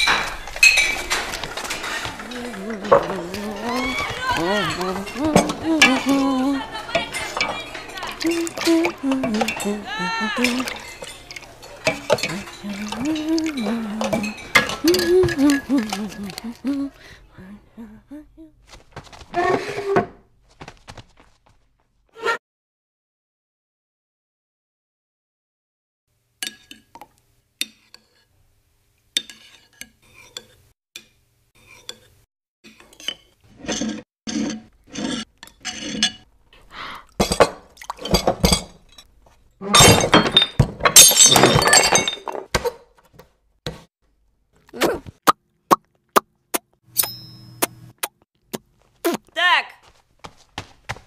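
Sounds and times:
crockery crashing and breaking: 0.0s - 6.1s, 37.2s - 42.7s
spoons clinking against bowls: 0.0s - 16.6s, 26.4s - 27.0s.

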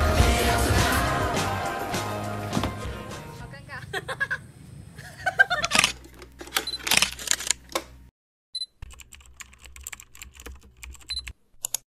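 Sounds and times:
keyboard keys clicking: 8.8s - 11.8s.

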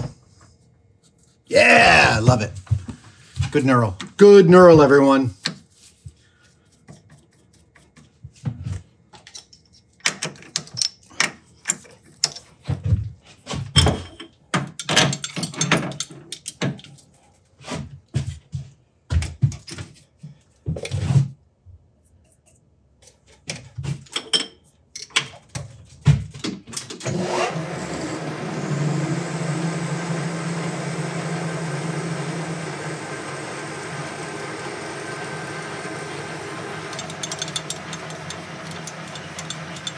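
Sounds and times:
metal tools clinking and knocking: 13.8s - 17.0s, 36.8s - 39.9s
metal lathe whining and humming: 27.1s - 39.9s.

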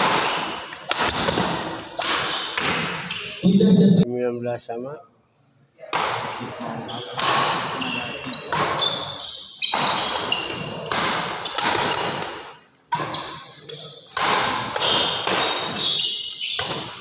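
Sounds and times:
racket hitting shuttlecock: 0.0s - 3.1s, 9.7s - 13.4s, 14.1s - 15.8s
shoes squeaking on floor: 0.1s - 4.0s, 6.3s - 12.4s, 13.0s - 14.1s, 14.8s - 17.0s.

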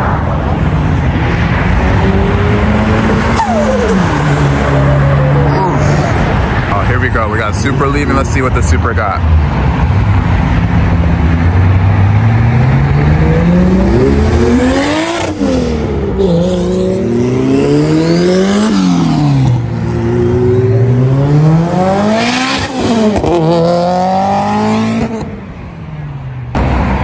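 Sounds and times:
car engine accelerating hard: 1.3s - 6.8s, 9.4s - 25.4s.

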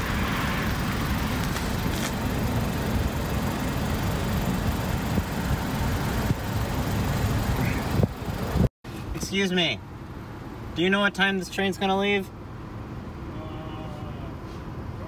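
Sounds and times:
car engine idling: 0.0s - 8.7s.

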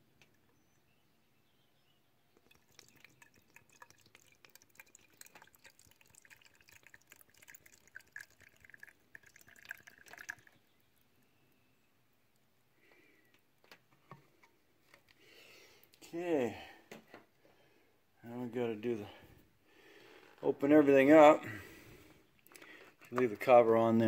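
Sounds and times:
fluid trickling into reservoir: 2.4s - 10.9s.

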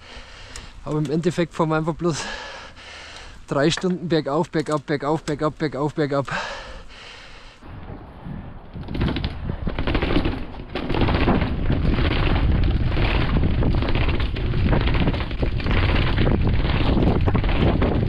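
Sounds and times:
wind buffeting microphone: 7.6s - 18.0s
knocks and rattles: 8.7s - 18.0s.

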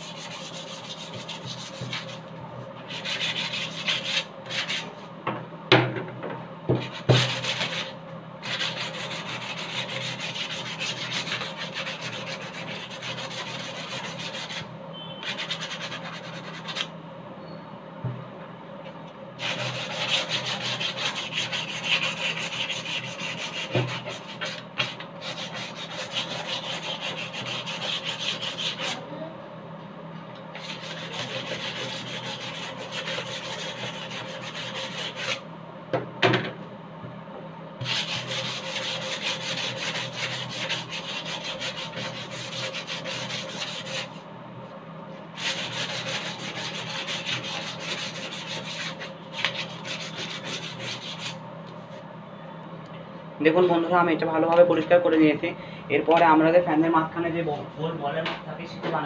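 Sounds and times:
sandpaper scratching plastic: 7.0s - 14.7s, 15.3s - 16.9s, 19.4s - 29.0s, 30.6s - 35.4s, 37.8s - 44.2s, 45.4s - 51.4s.

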